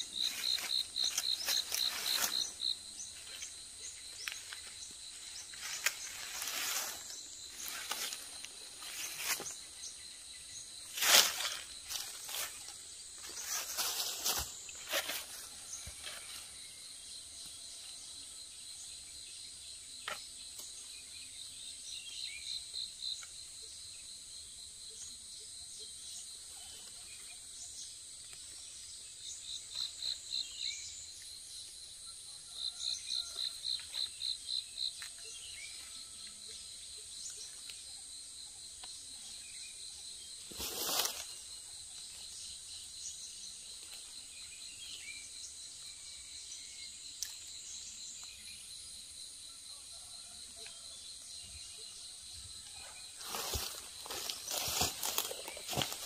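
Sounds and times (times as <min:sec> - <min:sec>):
rustling dry leaves and soil: 0:00.0 - 0:10.0, 0:10.7 - 0:16.7, 0:40.4 - 0:42.4, 0:53.1 - 0:56.0
insects droning: 0:00.0 - 0:56.0.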